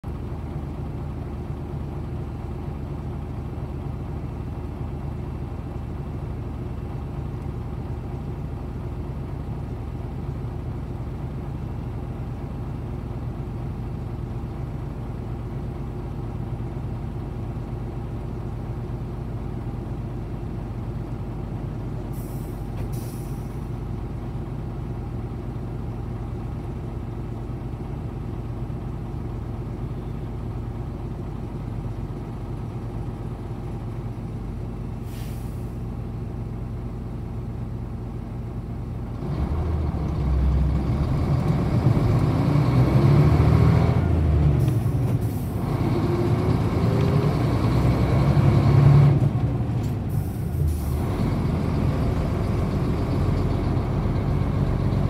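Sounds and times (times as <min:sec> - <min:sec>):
bus diesel engine idling: 0:00.0 - 0:55.0.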